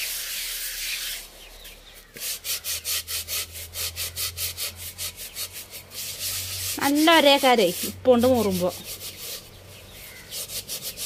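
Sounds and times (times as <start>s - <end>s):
scrubber rasping on clay pot: 0.0s - 11.0s.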